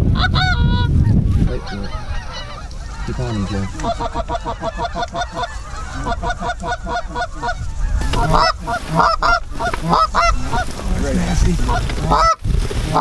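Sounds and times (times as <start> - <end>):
goose call honks and clucks: 0.2 - 13.0.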